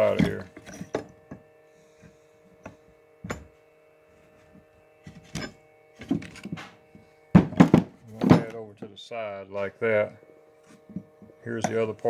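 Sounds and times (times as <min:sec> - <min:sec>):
electrical hum: 0:00.0 - 0:12.0
wood and metal parts knocking: 0:07.4 - 0:08.6.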